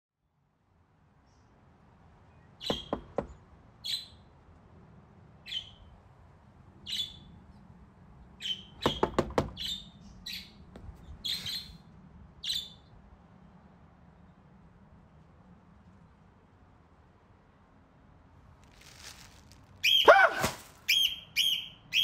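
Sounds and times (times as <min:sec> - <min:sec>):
birds chirping: 0:01.2 - 0:04.4, 0:06.8 - 0:14.4, 0:18.8 - 0:22.0
knocking on a door: 0:02.7 - 0:03.4, 0:08.8 - 0:09.6.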